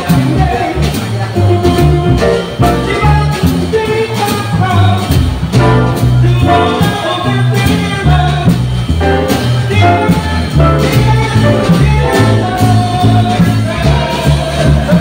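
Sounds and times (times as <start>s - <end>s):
drum kit with cymbals: 0.0s - 15.0s
upright bass walking: 0.0s - 15.0s
piano chords: 1.4s - 4.0s, 5.5s - 14.1s.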